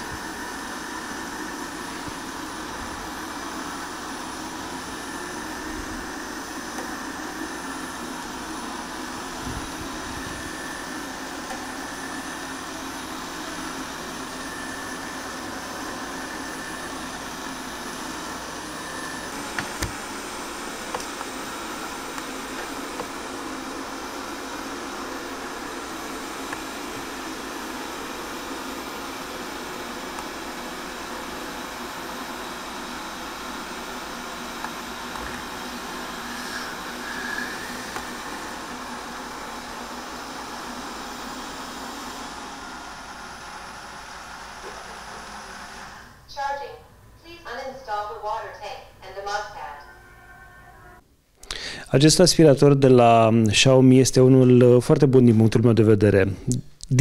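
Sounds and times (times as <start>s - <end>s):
robot vacuum running: 0.0s - 46.3s.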